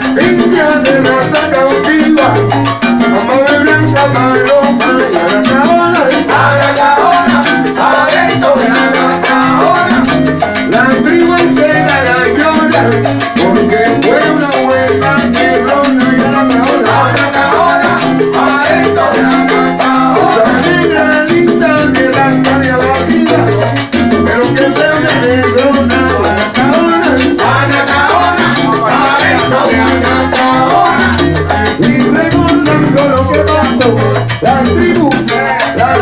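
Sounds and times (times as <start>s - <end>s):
congas: 0.0s - 36.0s
maracas: 0.0s - 36.0s
salsa band playing: 0.0s - 36.0s
chorus of voices singing: 5.1s - 12.8s, 13.4s - 22.4s, 26.2s - 33.0s, 34.8s - 36.0s.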